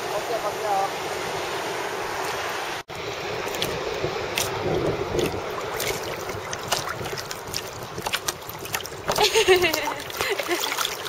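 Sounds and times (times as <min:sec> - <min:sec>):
seawater sloshing and lapping: 0:03.4 - 0:11.0
small sharp splashes: 0:03.4 - 0:11.0.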